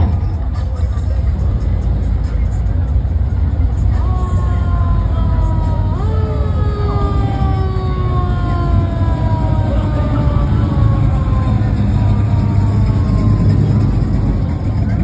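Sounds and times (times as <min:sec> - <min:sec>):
car engines rumbling past: 0:00.0 - 0:15.0
siren wailing: 0:04.0 - 0:14.7.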